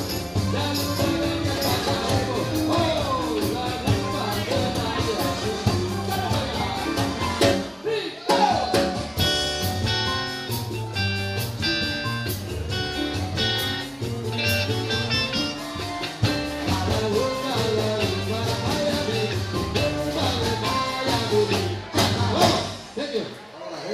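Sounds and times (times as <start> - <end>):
drum kit: 0.0 - 23.0
electric guitar: 8.7 - 22.6
keyboard chords: 8.8 - 22.8.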